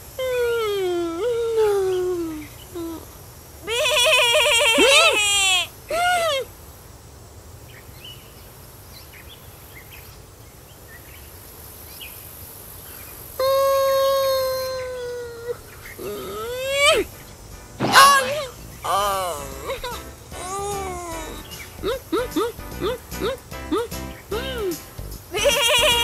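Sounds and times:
puppet animal bleating call: 3.6 - 5.7, 17.8 - 26.0
puppet long held cry: 3.6 - 6.5, 13.4 - 17.1, 17.9 - 24.8, 25.4 - 26.0.

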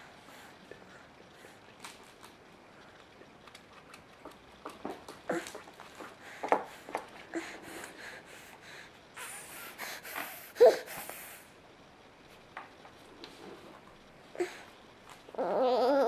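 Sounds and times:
baby breathing and snorting: 5.3 - 11.4
baby vocal sound: 15.3 - 16.0.

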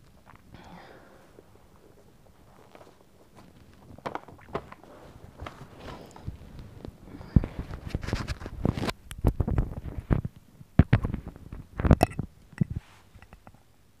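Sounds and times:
cloth rustling: 1.6 - 8.9.

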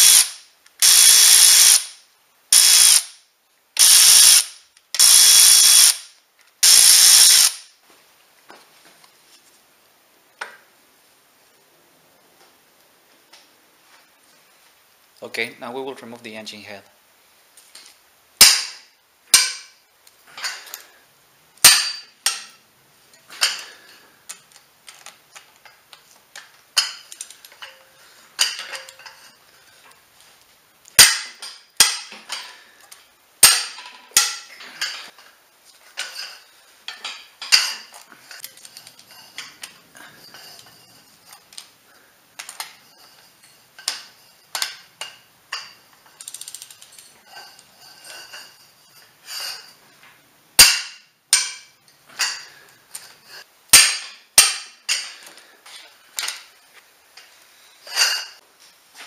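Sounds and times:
ratchet wrench clicking: 0.0 - 2.0, 2.6 - 3.2, 3.8 - 7.6, 46.2 - 47.0.

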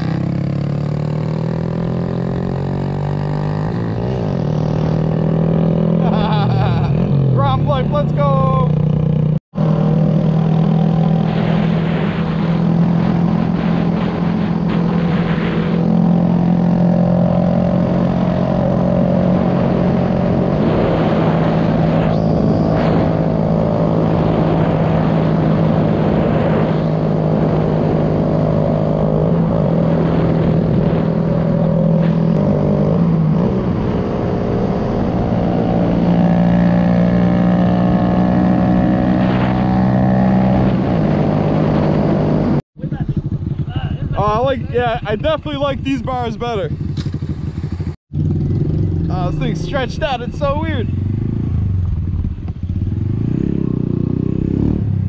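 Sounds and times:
wind rush: 10.0 - 55.0
motorbike engine running: 42.8 - 54.5.

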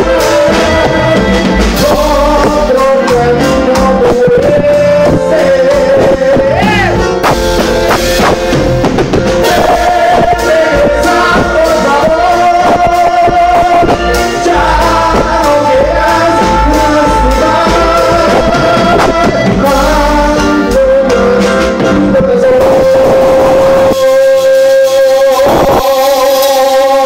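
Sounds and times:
person singing: 0.0 - 8.6, 9.3 - 27.0
drums: 0.0 - 27.0
live band music: 0.0 - 27.0.

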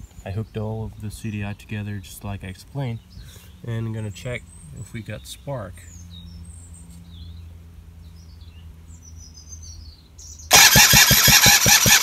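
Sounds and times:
birds chirping: 0.0 - 12.0
scooter engine cranking: 10.5 - 12.0.

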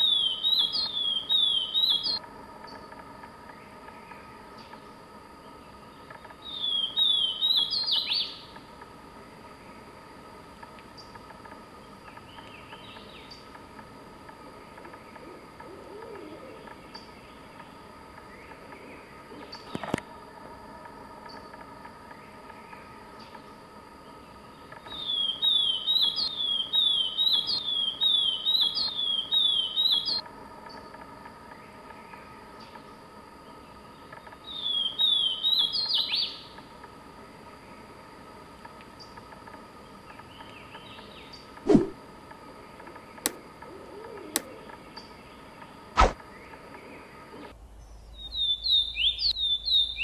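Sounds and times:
bird singing whistled notes: 0.0 - 2.2, 6.4 - 8.5, 24.9 - 30.2, 34.5 - 36.5, 47.8 - 50.0
sharp click: 43.2 - 43.4, 44.3 - 44.6, 46.0 - 46.2.

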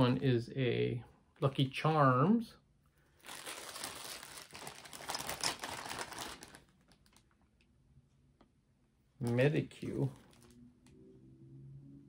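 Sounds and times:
plastic bag crinkling: 3.1 - 7.5, 10.0 - 10.6.

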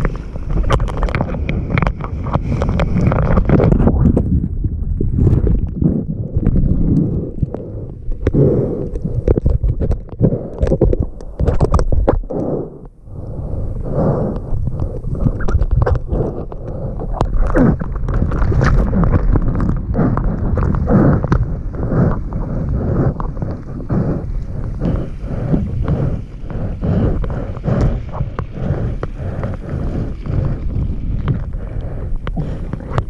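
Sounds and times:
water splashes: 17.1 - 31.7.

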